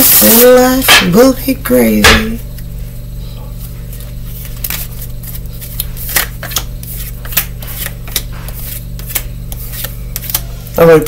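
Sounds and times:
steady low hum: 0.0s - 11.0s
cards being shuffled: 3.9s - 10.5s.

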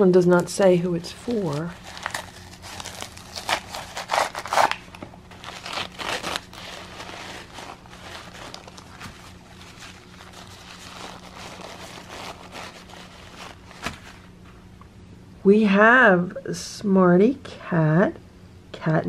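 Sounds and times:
packing paper crinkling and tearing: 1.0s - 14.3s.

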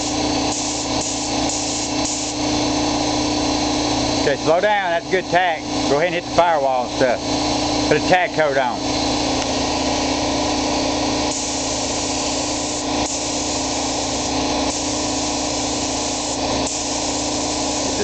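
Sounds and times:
paint spray gun hissing: 0.0s - 2.5s, 11.2s - 18.0s
steady mechanical hum: 0.0s - 18.0s.

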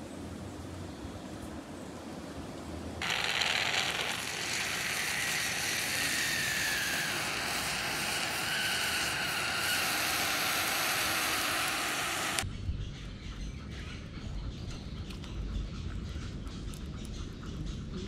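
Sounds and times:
wood fire crackling and hissing: 1.3s - 12.4s.

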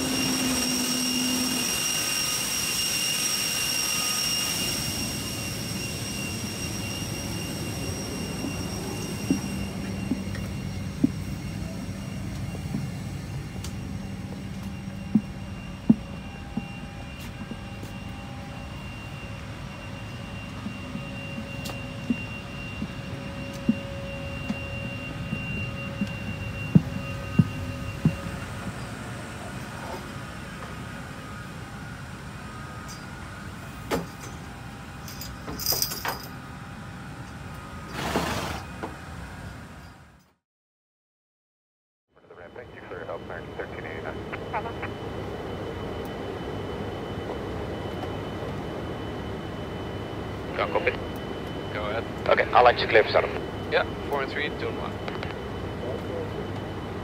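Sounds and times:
faint high steady tones: 0.0s - 37.8s, 42.2s - 57.0s
steady mechanical hum: 0.0s - 40.2s, 42.2s - 57.0s
footsteps on deck floor: 8.4s - 11.3s, 14.2s - 18.2s, 20.4s - 28.5s
metallic jingling and clinking: 35.0s - 36.4s
low background hum: 42.2s - 57.0s.

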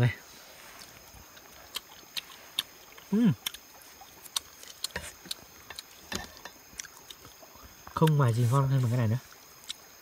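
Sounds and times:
chopsticks clicking on food: 1.7s - 3.7s, 4.3s - 7.2s.

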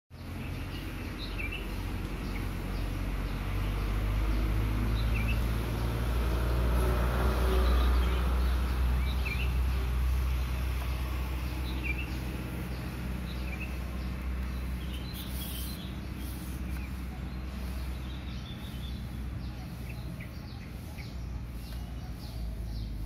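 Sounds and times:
small bird chirping: 7.6s - 23.0s.

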